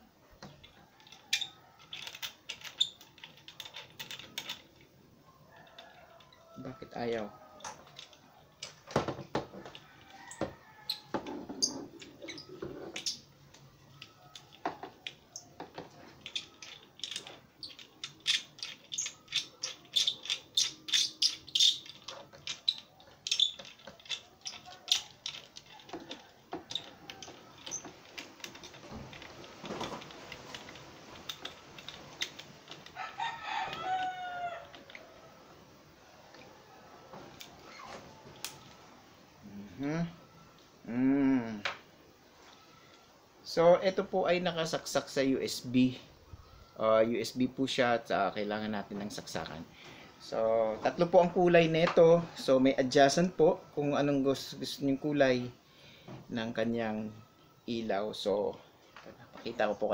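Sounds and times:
plastic parts clicking and rattling: 0:00.4 - 0:04.9, 0:07.6 - 0:10.4, 0:12.0 - 0:33.0, 0:33.7 - 0:35.1
rooster crowing: 0:05.3 - 0:08.1, 0:09.6 - 0:11.3, 0:32.9 - 0:35.6.

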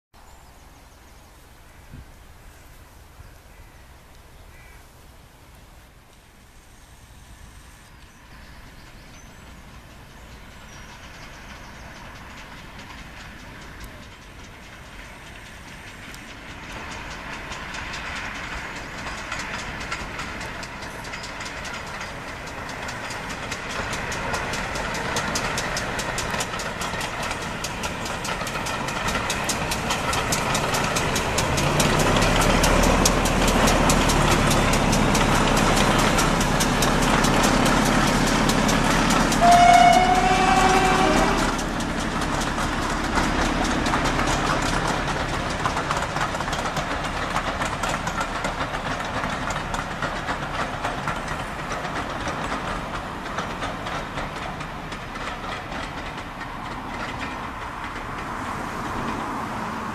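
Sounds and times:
locomotives passing: 0:00.6 - 0:59.9
coaches rumbling by: 0:08.6 - 0:59.9
locomotive horn blast: 0:39.2 - 0:41.7.

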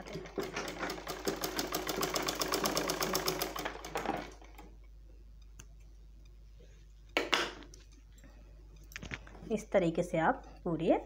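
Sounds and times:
sewing machine stitching: 0:00.0 - 0:04.6
faint hum: 0:03.2 - 0:11.0.

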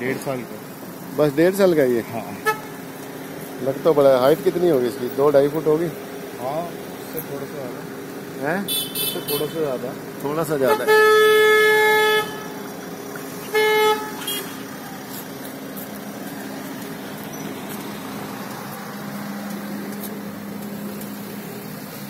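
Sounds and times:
vehicle horn honking: 0:02.4 - 0:02.8, 0:08.6 - 0:09.8, 0:10.5 - 0:12.6, 0:13.4 - 0:15.0.

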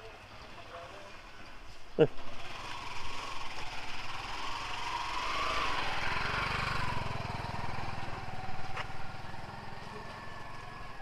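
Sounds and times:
small motorcycle engine running: 0:02.2 - 0:11.0.

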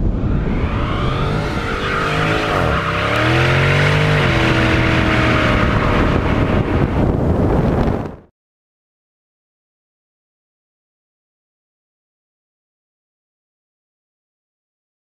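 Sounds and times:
car engine at high revs: 0:00.0 - 0:08.3.

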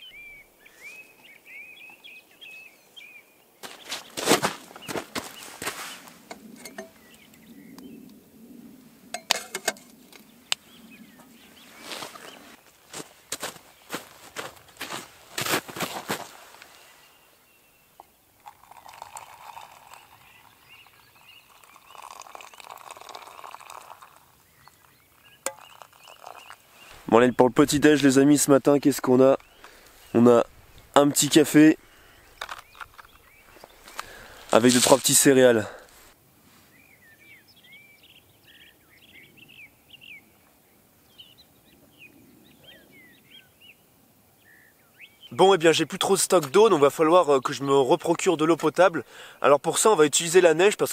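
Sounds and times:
songbird chirping and whistling: 0:00.0 - 0:03.9
water pouring into a cup: 0:18.4 - 0:26.8.

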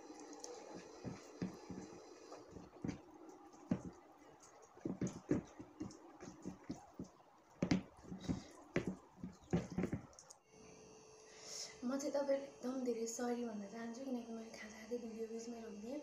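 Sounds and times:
chewing and mouth smacks: 0:00.0 - 0:09.5
fingers mixing food on plate: 0:00.2 - 0:10.4.

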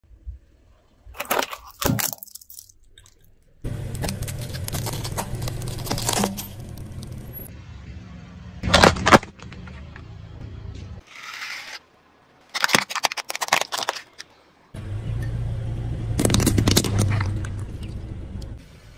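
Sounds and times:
crackling and squashing: 0:00.7 - 0:07.5, 0:08.6 - 0:10.0, 0:11.0 - 0:14.5, 0:16.2 - 0:18.1
plastic cracking under tyre: 0:01.2 - 0:02.8, 0:03.9 - 0:07.3, 0:08.6 - 0:09.8, 0:12.5 - 0:14.3, 0:16.2 - 0:17.7
snack packet bursting: 0:12.5 - 0:14.2, 0:16.2 - 0:17.4.

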